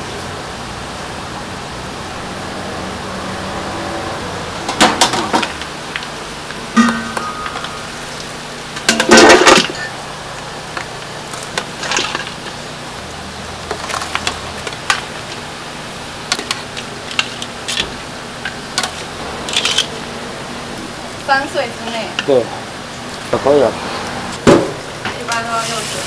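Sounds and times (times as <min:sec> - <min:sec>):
steady background hum: 0:00.0 - 0:26.0
metal skimmer clanking on stockpot: 0:06.8 - 0:08.0.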